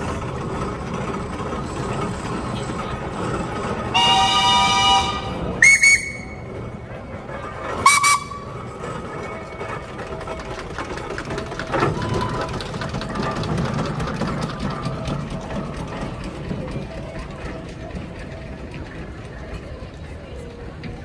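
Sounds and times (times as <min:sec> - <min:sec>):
steam engine whistles: 0:03.9 - 0:06.5, 0:07.8 - 0:08.6.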